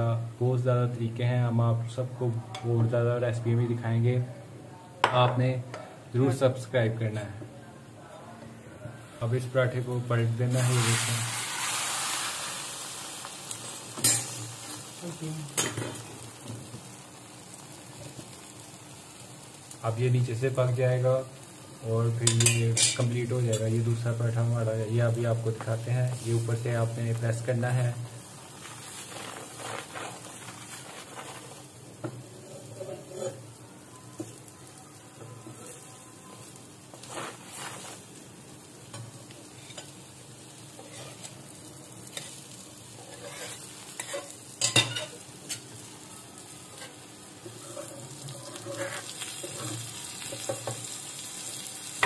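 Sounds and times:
bread sizzling on a pan: 9.2 - 52.0
spatula scraping: 28.6 - 31.6, 32.4 - 33.4, 37.0 - 38.1, 40.8 - 41.4, 43.0 - 45.6, 46.7 - 50.8.

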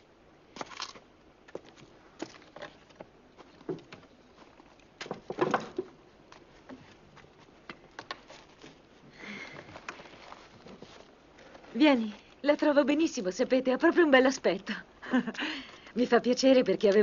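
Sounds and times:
rustle: 0.0 - 14.3
wooden pieces knocking on a bench: 5.0 - 5.9.

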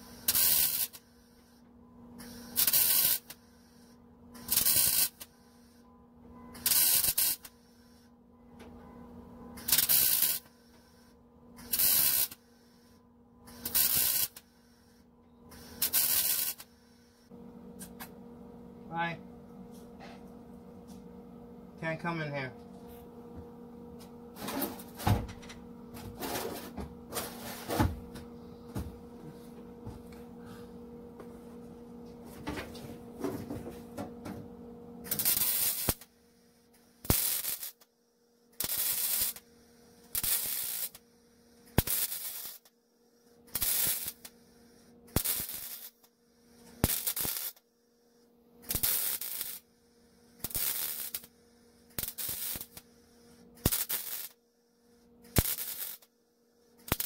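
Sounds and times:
welder crackling bursts: 0.0 - 1.1, 2.2 - 3.8, 4.4 - 5.6, 6.6 - 7.6, 9.6 - 11.0, 11.6 - 12.9, 13.5 - 17.2, 35.0 - 36.1, 37.0 - 37.9, 38.6 - 41.0, 41.7 - 42.8, 43.5 - 44.4, 45.1 - 47.6, 48.6 - 49.7, 50.4 - 52.9, 53.6 - 54.4, 55.2 - 56.1, 56.8 - 57.0
steady electrical hum: 0.0 - 57.0.

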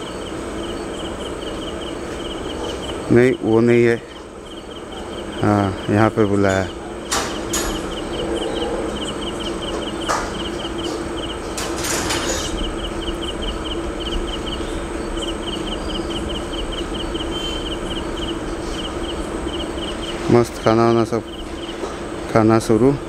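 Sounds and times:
crickets chirping: 0.0 - 23.0
steady low hum: 0.0 - 23.0.

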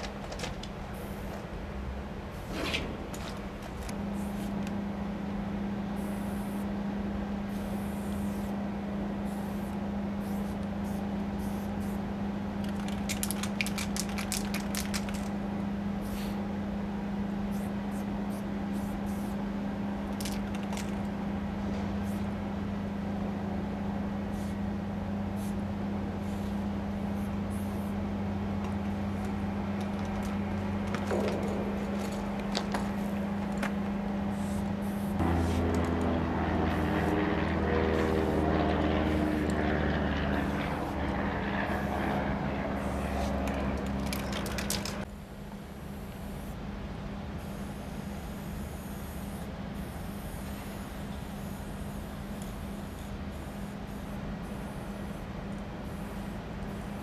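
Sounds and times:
engine idling hum: 0.0 - 45.2
aerosol spray paint hisses: 16.0 - 16.4, 47.4 - 55.2.

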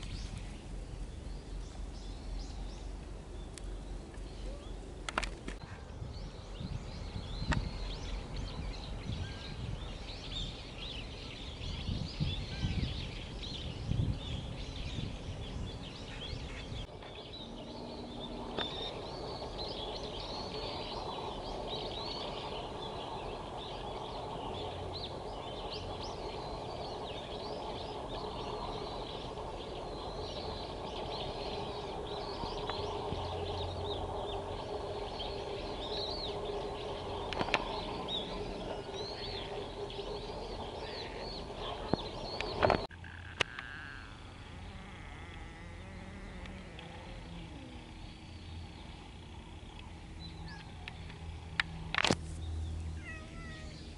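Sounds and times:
wind buffeting microphone: 0.0 - 42.9
small birds chirping: 0.0 - 53.9
steady low hum: 0.0 - 53.9.

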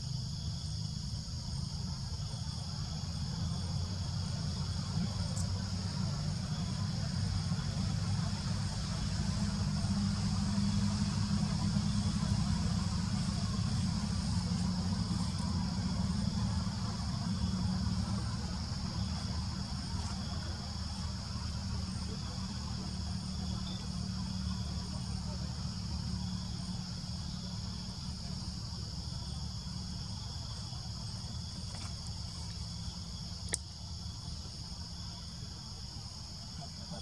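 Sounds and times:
insect chorus: 0.0 - 37.0.

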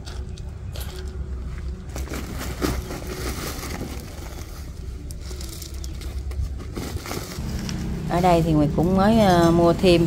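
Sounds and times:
plastic sack rustling: 1.9 - 8.5.

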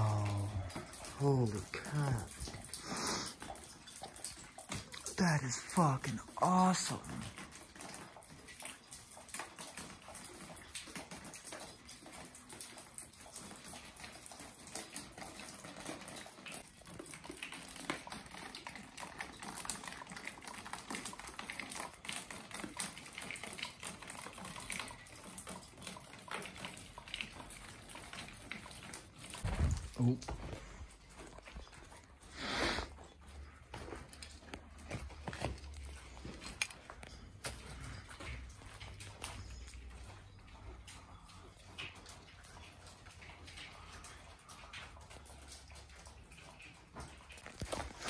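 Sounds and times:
footsteps crunching over rubble: 33.6 - 37.4.

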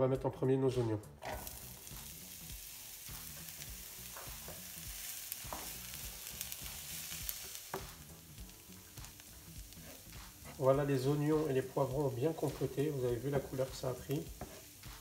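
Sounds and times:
onions sizzling in oil: 1.2 - 15.0
wooden spoon scraping pan: 9.7 - 15.0.

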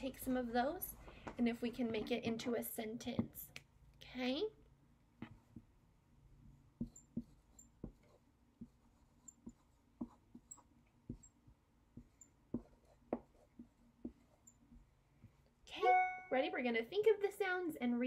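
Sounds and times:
marker writing on whiteboard: 5.2 - 5.7, 6.4 - 15.6.

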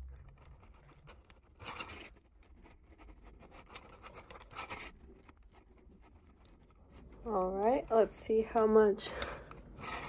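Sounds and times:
small wire clicks: 0.0 - 10.0
wire scratching on glass: 0.1 - 10.0.

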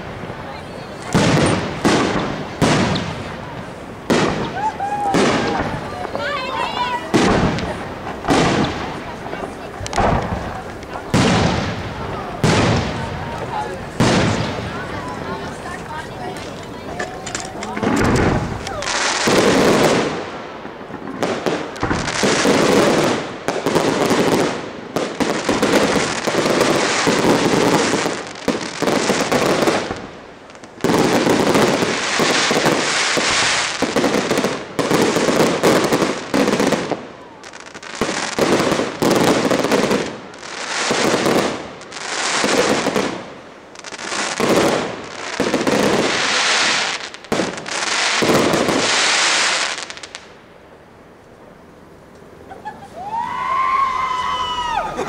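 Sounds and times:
firework shells bursting: 1.0 - 50.4.

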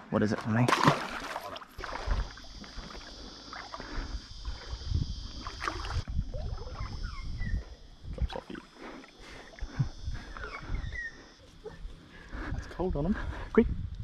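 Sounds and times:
water sloshing around wading legs: 0.2 - 6.9
high-pitched hiss: 1.8 - 13.6.

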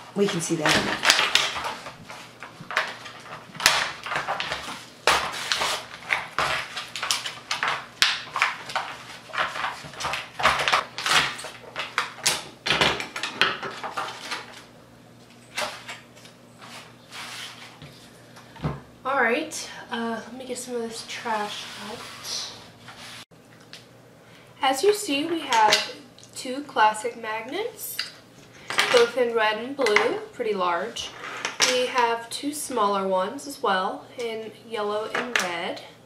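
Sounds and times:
plastic packaging crinkling and tearing: 0.2 - 12.4.

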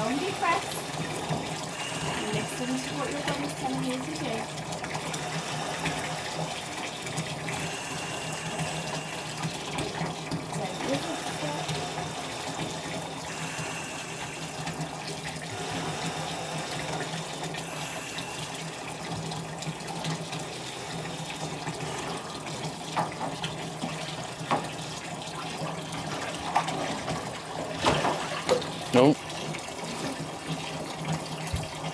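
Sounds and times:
water pouring from tap into pool: 0.0 - 31.9.

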